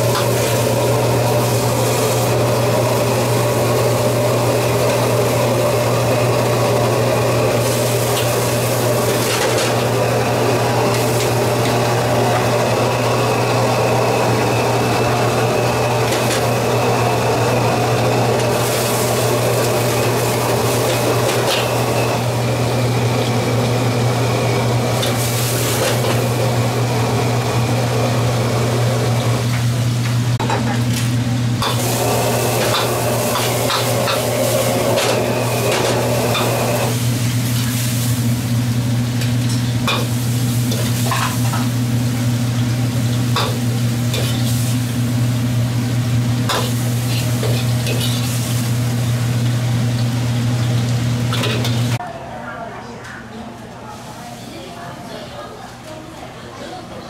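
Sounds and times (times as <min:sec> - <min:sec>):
food frying in a wok: 0:00.0 - 0:52.0
gas burner hum and hiss: 0:00.0 - 0:52.0.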